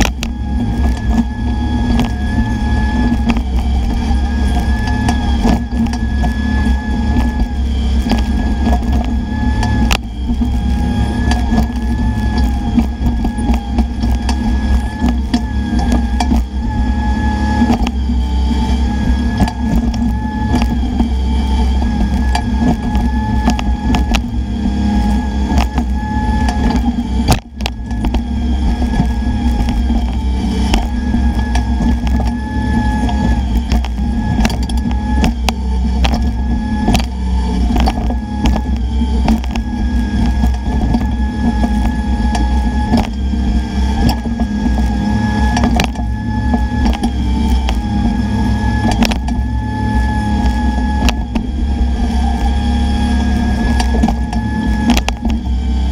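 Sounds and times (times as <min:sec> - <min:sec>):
diesel engine running under load: 0:00.0 - 0:55.9
high hydraulic whine: 0:00.0 - 0:55.9.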